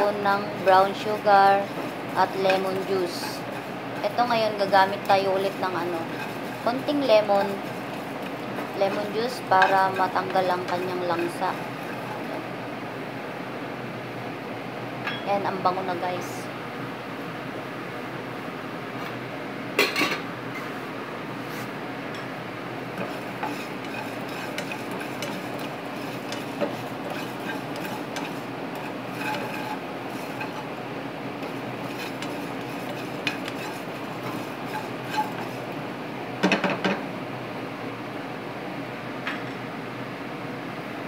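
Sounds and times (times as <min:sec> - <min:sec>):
spatula scraping frying pan: 0:00.0 - 0:12.4, 0:22.9 - 0:35.8
steady background hiss: 0:00.0 - 0:41.0.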